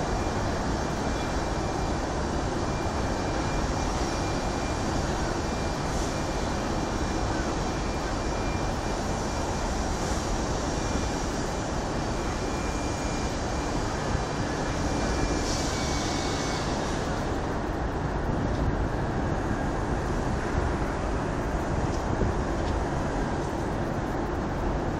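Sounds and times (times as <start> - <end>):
city traffic rumble: 0.0 - 24.9
wind buffeting microphone: 0.0 - 24.9.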